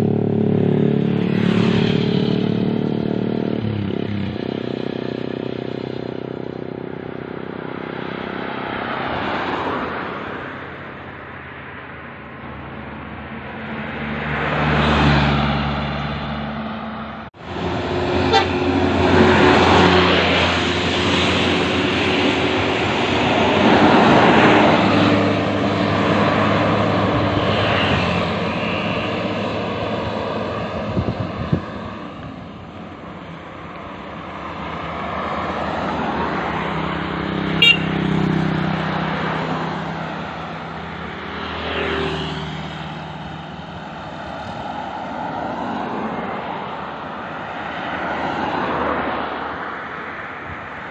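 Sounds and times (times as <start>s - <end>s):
road traffic passing: 0.0s - 50.9s
held horn notes: 17.6s - 20.0s, 37.5s - 38.1s.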